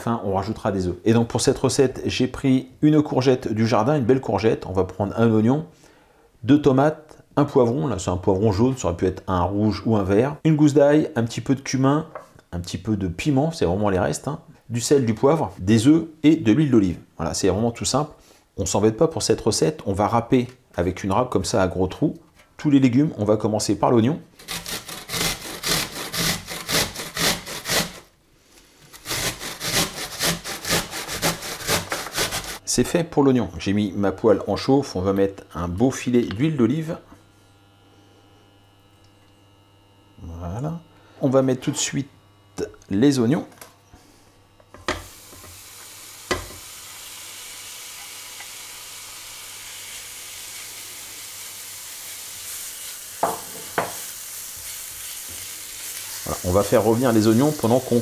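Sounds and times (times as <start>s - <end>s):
onion rasping on a grater: 24.4s - 28.1s, 28.9s - 32.6s, 49.8s - 58.0s
onion sizzling in oil: 44.9s - 58.0s
spatula knocking on pan: 53.2s - 54.0s.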